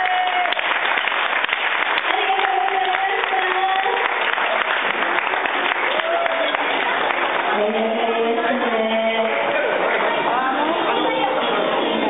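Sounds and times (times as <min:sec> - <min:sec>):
people shouting and cheering: 0:00.0 - 0:00.7, 0:02.1 - 0:12.0
audience clapping: 0:00.0 - 0:08.0, 0:09.2 - 0:10.3.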